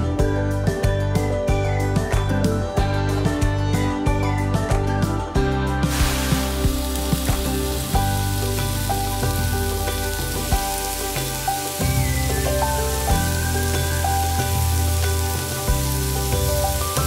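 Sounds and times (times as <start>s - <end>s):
soft background music: 0.0s - 17.0s
tofu sizzling in hot oil: 5.8s - 17.0s.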